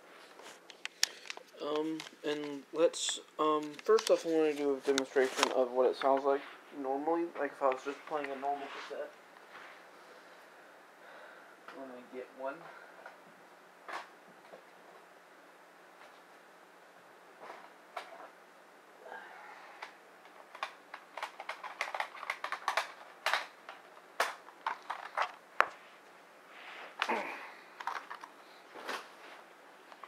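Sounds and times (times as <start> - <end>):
rustling: 3.6 - 10.4
cassette tapes clattering: 19.8 - 25.7, 27.8 - 29.2.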